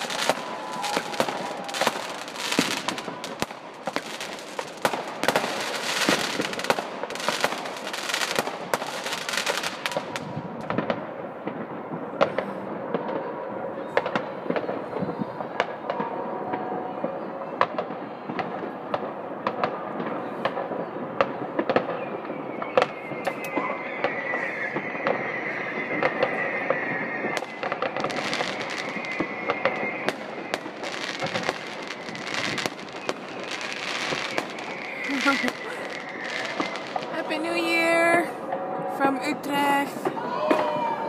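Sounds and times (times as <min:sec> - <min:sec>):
high firework whistle: 0:00.0 - 0:10.9, 0:20.2 - 0:41.0
firework pops and bangs: 0:00.0 - 0:38.6, 0:39.9 - 0:41.0
firecrackers crackling: 0:00.0 - 0:41.0.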